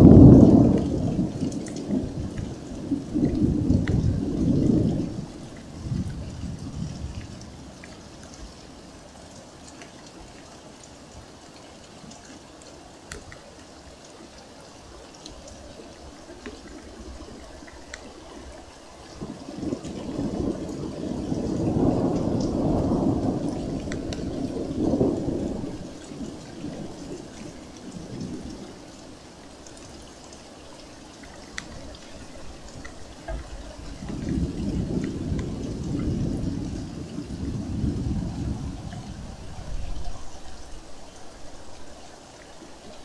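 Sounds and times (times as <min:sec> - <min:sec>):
thunder rumbling: 0:00.0 - 0:08.7, 0:15.9 - 0:29.2, 0:31.4 - 0:42.0
steady rain: 0:00.0 - 0:43.0.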